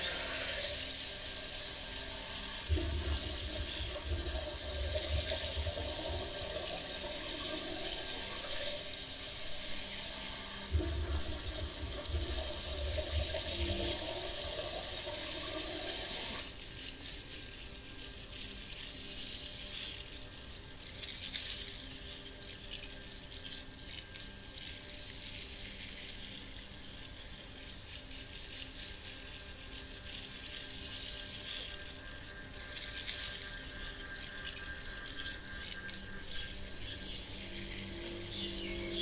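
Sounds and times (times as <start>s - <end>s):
faint steady tones: 30.1s - 39.0s.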